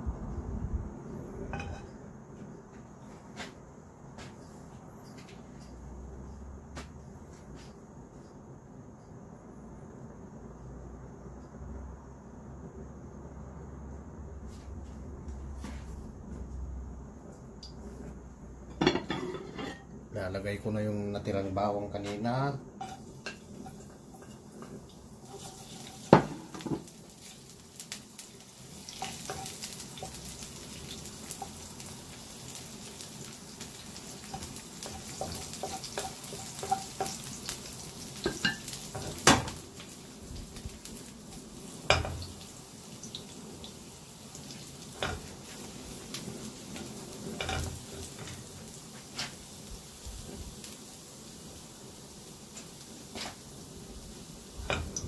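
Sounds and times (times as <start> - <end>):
garlic sizzling in a pan: 1.5 - 2.0, 17.6 - 55.0
utensil scraping a pan: 18.8 - 19.9, 22.8 - 26.6.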